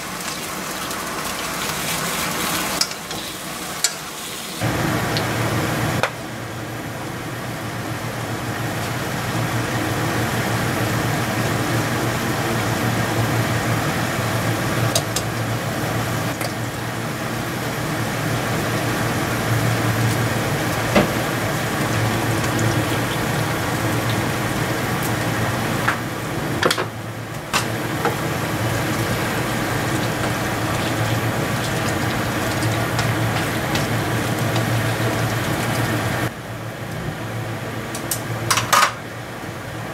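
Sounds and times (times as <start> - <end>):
meat sizzling in a frying pan: 0.0 - 5.4.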